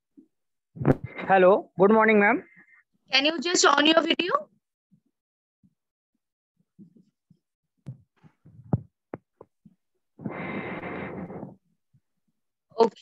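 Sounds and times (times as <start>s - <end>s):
microphone handling knocks and clicks: 0.8s - 1.2s, 7.8s - 9.6s.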